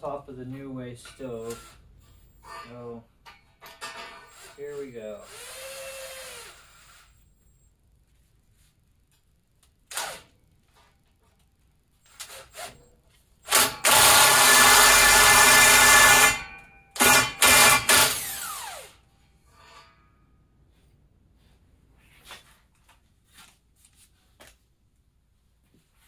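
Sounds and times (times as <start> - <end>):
electric drill flaring steel pipe: 1.4 - 2.7, 4.1 - 7.2, 9.9 - 10.3, 13.4 - 19.9
drill motor winding down: 4.3 - 7.1, 13.5 - 16.4, 17.0 - 19.0.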